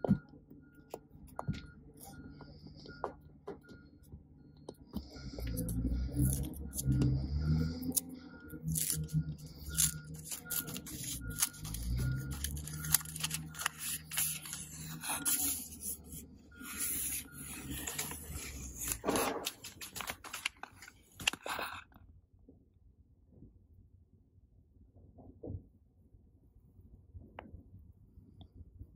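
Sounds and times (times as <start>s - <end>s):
paper label peeling off glass: 7.8s - 21.7s.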